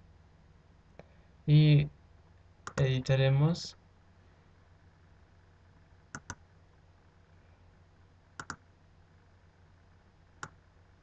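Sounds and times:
faint low hum: 0.0s - 11.0s
computer mouse clicking: 2.6s - 2.8s, 6.1s - 6.4s, 8.4s - 8.6s.

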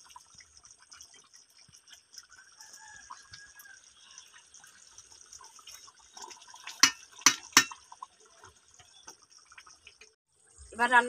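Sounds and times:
curry bubbling in a pan: 0.0s - 10.6s.

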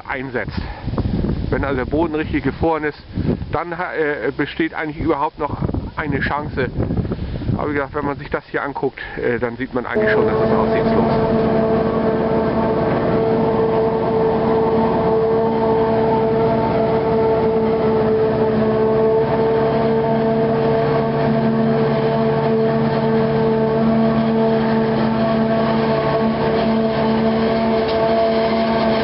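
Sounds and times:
forage harvester machine whine: 10.0s - 29.0s
tractor engine: 10.0s - 29.0s.

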